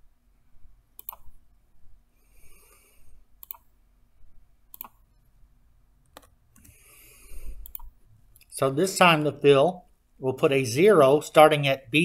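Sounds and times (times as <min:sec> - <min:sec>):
computer mouse clicks: 0:01.0 - 0:01.4, 0:03.4 - 0:03.7, 0:04.7 - 0:05.1, 0:06.0 - 0:06.8, 0:07.5 - 0:08.5
keyboard clicks: 0:01.0 - 0:01.4, 0:03.4 - 0:03.7, 0:04.7 - 0:05.0, 0:06.0 - 0:06.8, 0:07.6 - 0:08.0.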